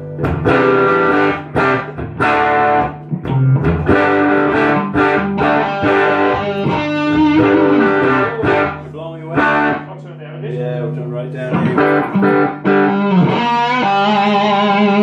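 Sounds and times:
electric guitars jamming: 0.0s - 15.0s.

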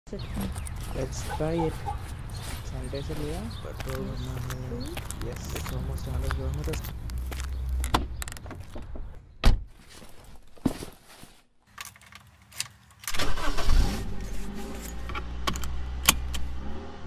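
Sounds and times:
car engine starting and idling: 13.0s - 17.0s.

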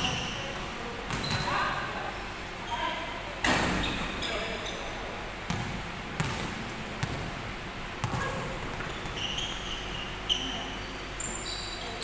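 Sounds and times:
sneakers squeaking on floor: 0.0s - 1.8s, 2.6s - 7.3s, 8.0s - 12.0s
basketball bouncing on hardwood: 5.5s - 7.3s.

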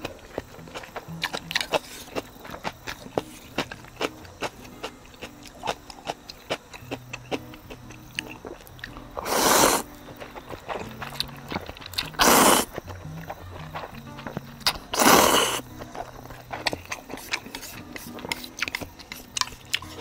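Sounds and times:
light background music: 0.0s - 20.0s
person chewing: 0.0s - 20.0s
noodle slurping: 8.2s - 10.0s, 10.6s - 12.9s, 14.6s - 20.0s.

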